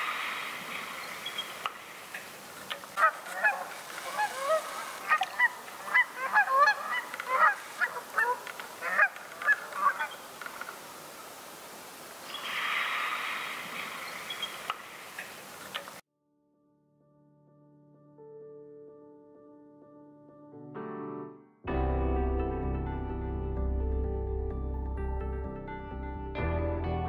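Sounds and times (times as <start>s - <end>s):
soft rushing noise: 0.0s - 6.2s, 7.0s - 16.0s
geese honking: 0.6s - 10.8s.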